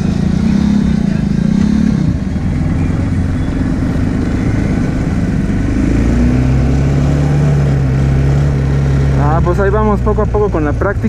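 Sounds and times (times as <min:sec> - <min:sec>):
quad bike engine running: 0:00.0 - 0:11.0.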